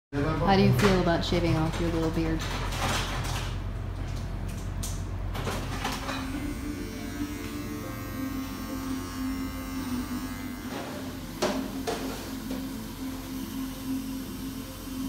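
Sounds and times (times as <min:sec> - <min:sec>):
electric beard trimmer buzzing: 0:06.0 - 0:15.0.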